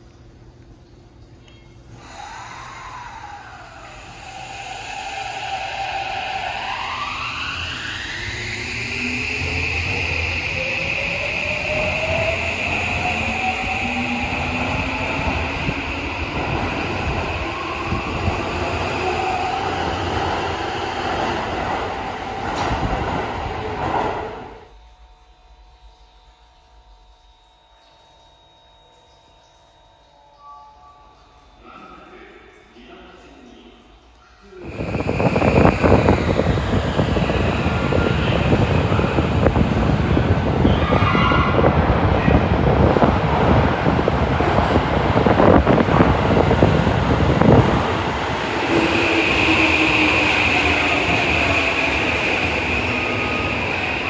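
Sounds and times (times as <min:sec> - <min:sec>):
quiet hum: 0:00.0 - 0:04.4
subway train wheels rumbling on rail: 0:02.0 - 0:24.7, 0:34.4 - 0:54.0
faint high-pitched tone: 0:24.7 - 0:34.6.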